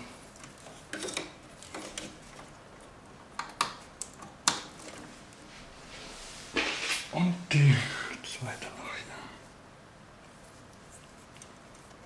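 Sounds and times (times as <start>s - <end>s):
cables clicking and rustling: 0.0s - 5.5s, 10.2s - 12.0s.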